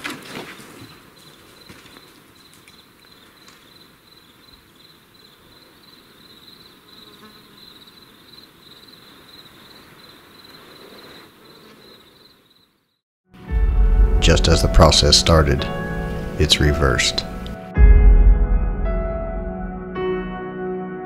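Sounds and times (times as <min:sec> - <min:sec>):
faint forest background hiss: 0:00.0 - 0:13.0, 0:14.3 - 0:17.6
insect trilling: 0:00.9 - 0:13.0.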